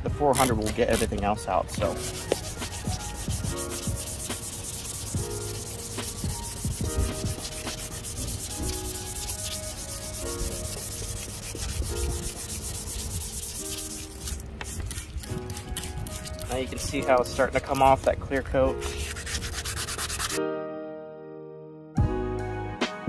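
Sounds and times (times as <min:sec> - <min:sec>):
wet sandpaper rubbing: 0:00.3 - 0:18.1, 0:18.7 - 0:20.4.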